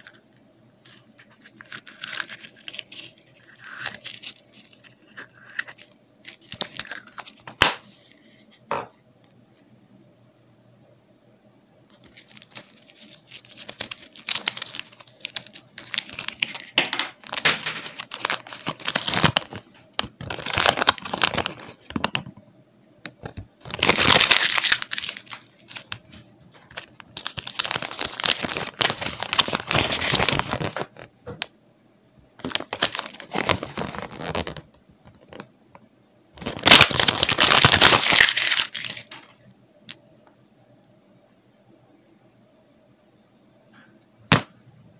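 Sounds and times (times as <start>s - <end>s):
plastic wrappers crinkling and tearing: 0.9s - 8.2s, 11.9s - 22.2s, 23.2s - 31.1s, 32.4s - 35.5s, 36.4s - 39.4s.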